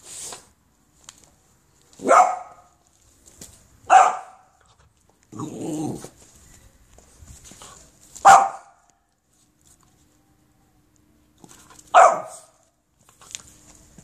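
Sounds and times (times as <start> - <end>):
puppy barking: 2.0 - 2.8, 3.9 - 4.6, 8.2 - 8.9, 11.9 - 12.6.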